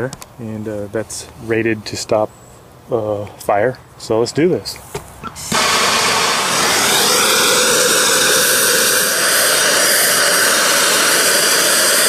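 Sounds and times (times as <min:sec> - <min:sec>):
gas torch flame hissing: 0:05.2 - 0:12.0.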